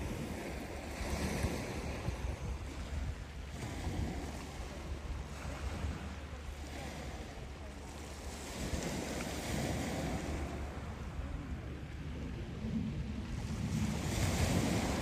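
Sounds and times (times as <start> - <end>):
waves on a pebble beach: 0.0 - 15.0
wind rumbling on microphone: 0.0 - 15.0.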